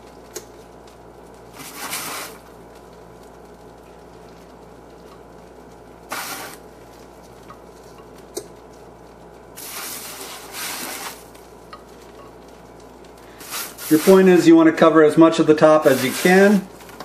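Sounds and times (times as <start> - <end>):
faint steady hum: 0.0 - 17.0
crumble scraped off metal pan: 15.8 - 16.5.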